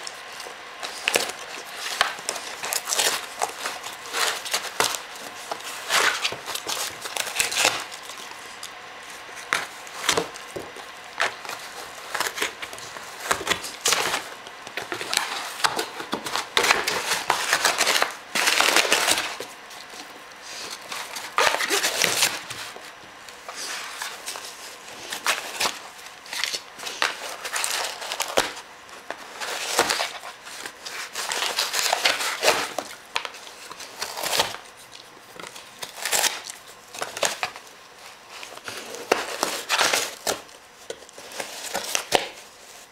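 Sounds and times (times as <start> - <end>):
dog tearing and chewing paper: 0.0 - 42.9.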